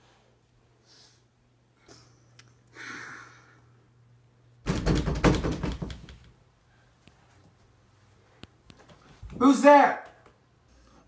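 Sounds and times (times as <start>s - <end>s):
rapid knocking on door: 4.6s - 6.2s.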